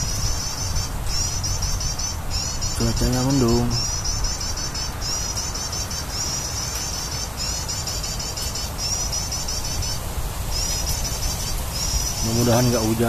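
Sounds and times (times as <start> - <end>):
rapid high-pitched chirping: 0.0 - 13.0.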